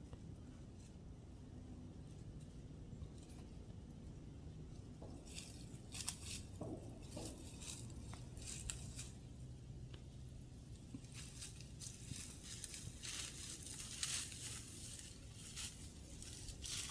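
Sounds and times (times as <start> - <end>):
dry leaves crunching underfoot: 5.2 - 9.5, 10.7 - 16.9.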